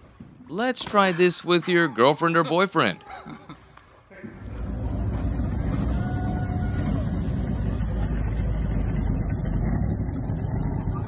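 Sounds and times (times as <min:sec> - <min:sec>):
car engine rumbling past: 0:04.3 - 0:11.0.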